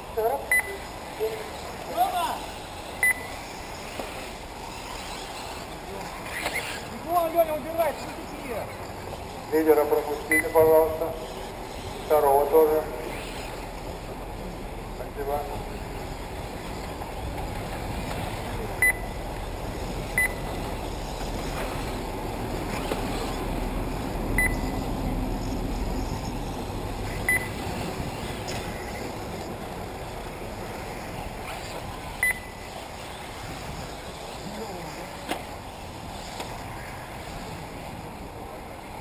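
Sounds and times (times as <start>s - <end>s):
rc cars running: 0.0s - 39.0s
short high beeps: 0.5s - 0.8s, 3.0s - 3.4s, 10.3s - 10.6s, 18.8s - 19.2s, 20.2s - 20.5s, 24.4s - 24.8s, 27.3s - 27.6s, 32.2s - 32.6s.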